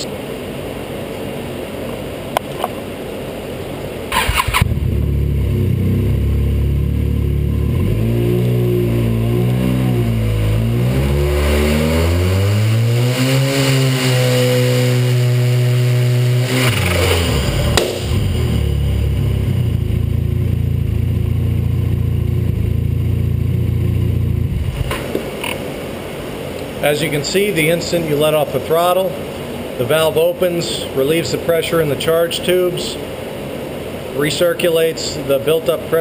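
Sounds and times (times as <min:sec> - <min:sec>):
engine cranking: 0:04.1 - 0:04.8
snowmobile engine revving: 0:04.1 - 0:24.9.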